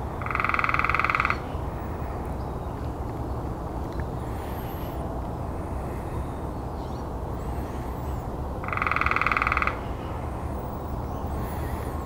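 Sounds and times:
woodpecker rolling churr call: 0.2 - 1.6, 7.4 - 9.9.

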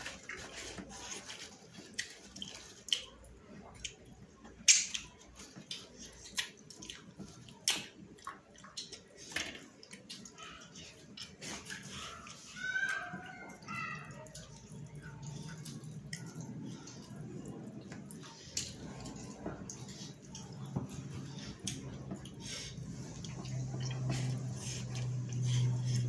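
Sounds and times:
chewing and lip smacks: 0.0 - 26.0
low steady hum: 11.2 - 26.0.

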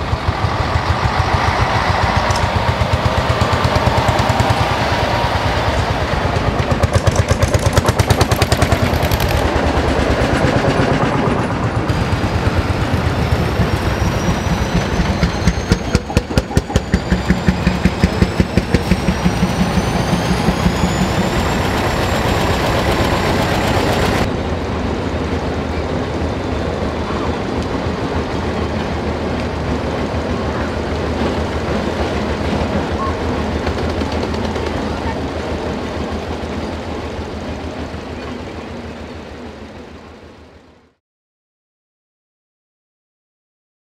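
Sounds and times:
tractor and lorry engines: 0.0 - 41.0.

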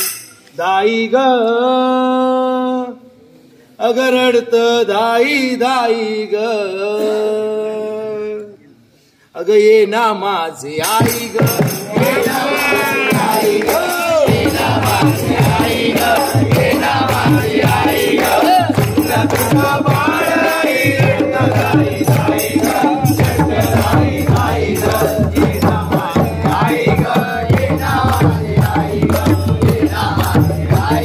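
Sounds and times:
rattling hand percussion: 0.0 - 0.6, 10.8 - 31.0
men singing together: 10.8 - 31.0
rhythmic clapping: 10.8 - 31.0.

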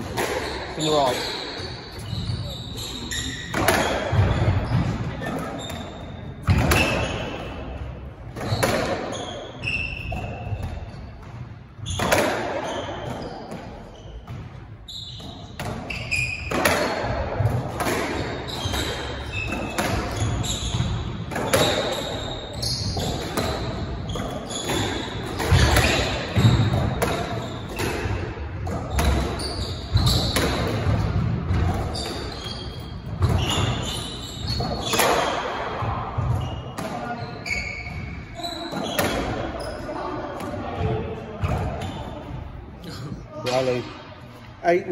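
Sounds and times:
shoes squeaking on wooden floor: 0.4 - 7.5, 18.4 - 27.9, 28.9 - 30.7, 31.6 - 40.2
squash ball cracking off racquets: 11.9 - 13.8, 15.2 - 22.0.

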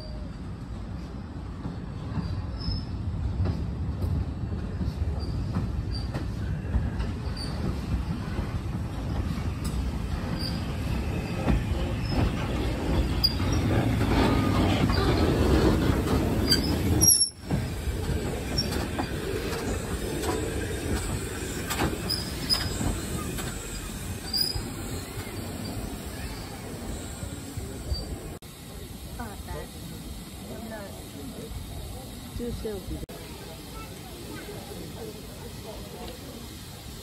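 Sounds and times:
train wheels rumbling on rails: 0.0 - 37.0
wheel squeaks: 10.2 - 17.5, 18.4 - 27.2.

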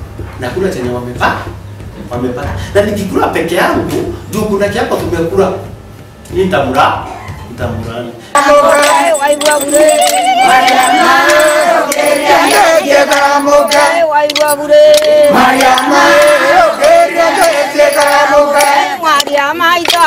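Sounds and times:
women singing together: 8.4 - 20.0.

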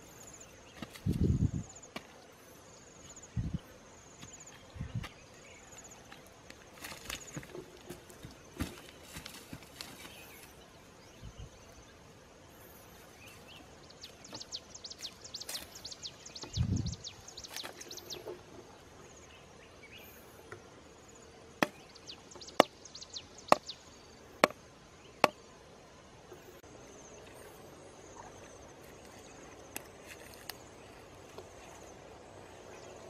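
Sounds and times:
hands rustling in dry soil: 4.1 - 10.6, 12.7 - 16.1, 27.2 - 31.9.

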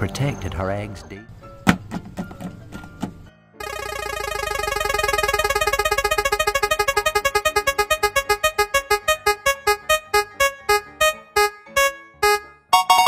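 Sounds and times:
prize wheel electronic notes: 3.6 - 13.0.

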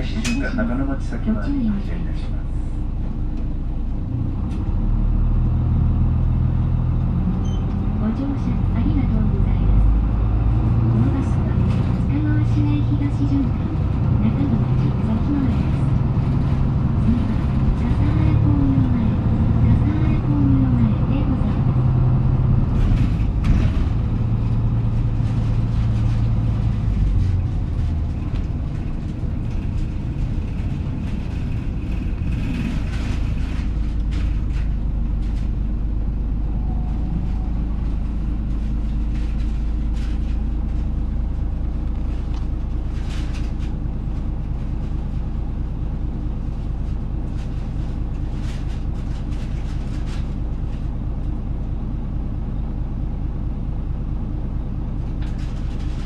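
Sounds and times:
bus body clicks and rattles: 0.0 - 0.7, 21.0 - 36.2, 37.7 - 51.5, 54.9 - 56.0
bus diesel engine rumbling: 0.0 - 56.0.

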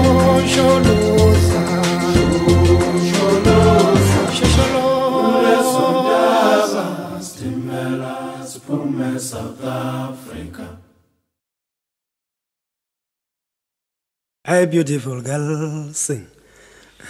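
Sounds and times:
choir singing in harmony: 0.0 - 11.0.

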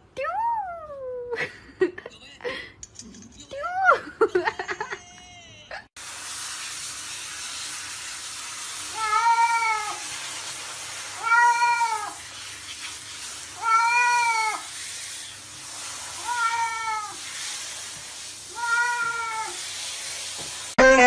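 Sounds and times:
shower spray hissing: 6.0 - 20.8
cat meowing: 8.9 - 10.0, 11.2 - 12.2, 13.6 - 14.7, 16.2 - 17.2, 18.5 - 19.6.

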